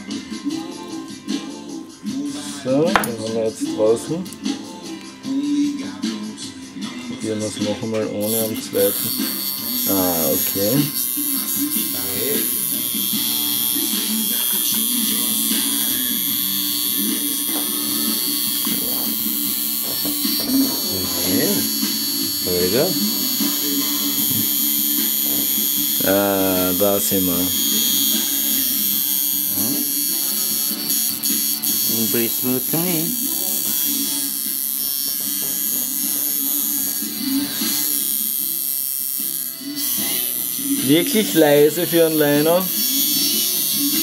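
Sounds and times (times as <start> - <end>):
tattoo machine buzzing: 8.2 - 44.0.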